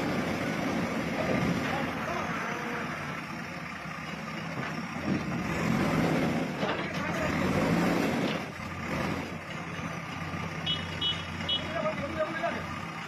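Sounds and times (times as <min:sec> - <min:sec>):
diesel engine revving: 0:00.0 - 0:13.0
debris clattering into truck: 0:06.4 - 0:07.4.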